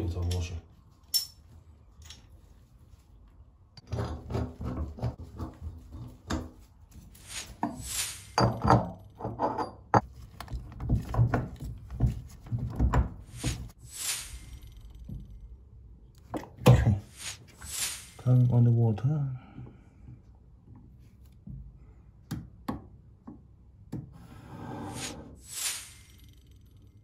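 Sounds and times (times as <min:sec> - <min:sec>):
rustling swishes: 0:07.0 - 0:08.4, 0:17.1 - 0:18.3.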